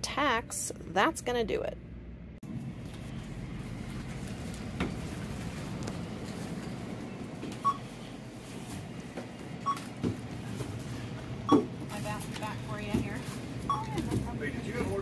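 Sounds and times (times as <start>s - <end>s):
store background hum: 0.0s - 15.0s
barcode scanner beeping: 13.7s - 14.0s.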